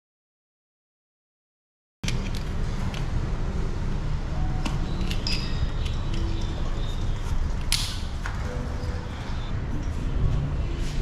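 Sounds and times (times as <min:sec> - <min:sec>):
steady low rumble: 0:06.2 - 0:11.0.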